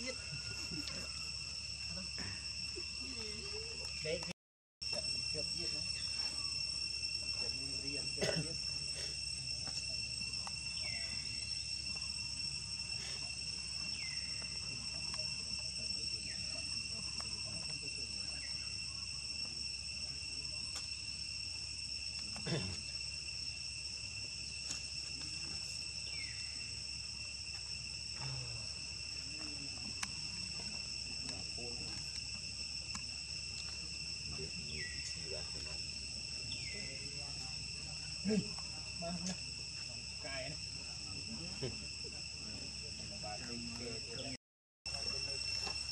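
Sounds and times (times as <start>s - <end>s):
insect chorus drone: 0.0s - 45.9s.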